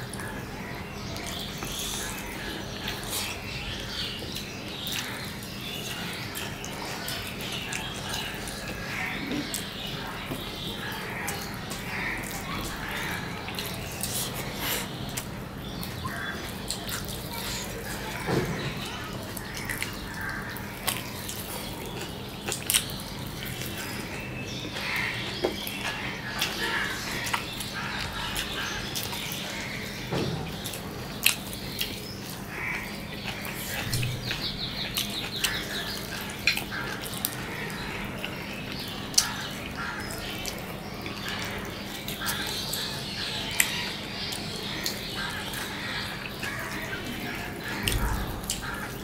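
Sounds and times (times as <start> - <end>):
chewing: 1.1 - 29.6, 30.5 - 49.0
lip-smacking: 10.9 - 23.9, 33.2 - 37.4.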